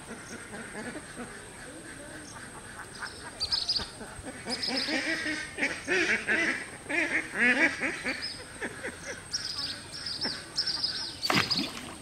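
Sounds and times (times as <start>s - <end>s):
ducks quacking: 0.0s - 12.0s
small birds chirping: 1.2s - 6.1s, 7.8s - 12.0s.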